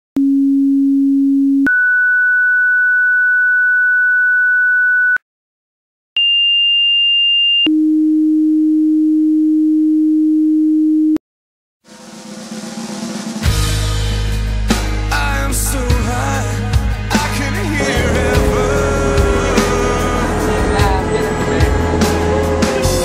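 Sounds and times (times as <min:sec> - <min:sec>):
rock music: 0:12.2 - 0:23.0
dispatch alert tones: 0:17.8 - 0:23.0.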